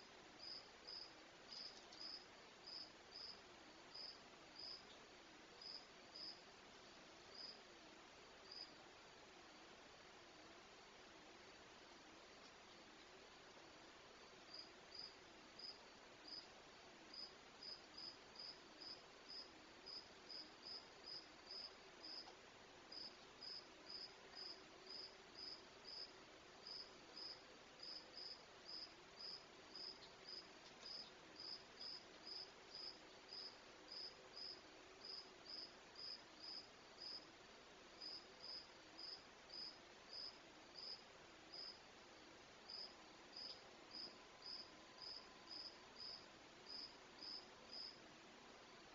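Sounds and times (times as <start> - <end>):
insect chirping: 0.4 - 5.0, 5.6 - 6.4, 7.3 - 7.6, 8.4 - 8.7, 17.1 - 22.3, 22.9 - 37.2, 38.0 - 41.8, 42.7 - 48.0.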